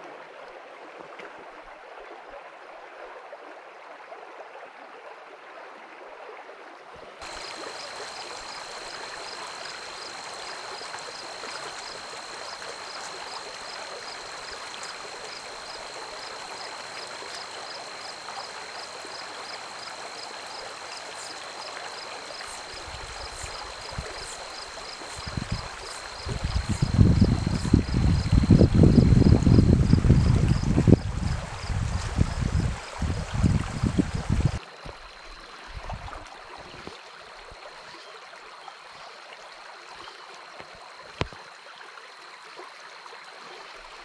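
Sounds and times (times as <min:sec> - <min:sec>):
stream rushing over stones: 0:07.2 - 0:37.6
wind buffeting microphone: 0:25.2 - 0:34.6.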